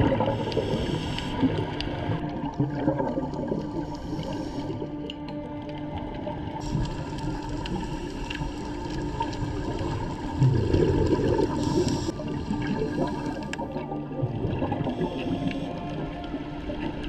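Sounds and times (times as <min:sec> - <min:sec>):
diver breathing through regulator: 0:00.0 - 0:02.2, 0:03.6 - 0:05.1, 0:10.6 - 0:13.8, 0:14.8 - 0:16.1
bubbles rushing underwater: 0:00.0 - 0:05.1, 0:05.8 - 0:17.0.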